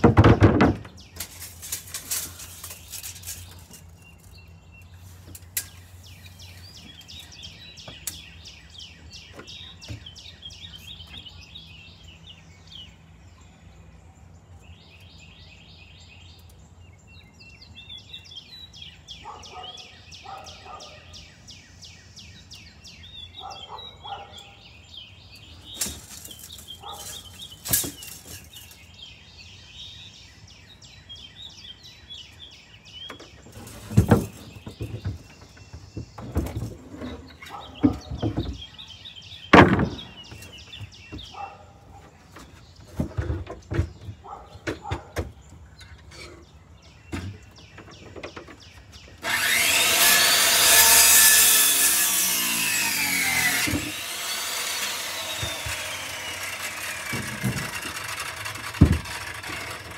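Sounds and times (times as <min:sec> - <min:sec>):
small birds chirping: 0:00.0 - 0:59.9
sharp knocks: 0:57.1 - 0:59.8.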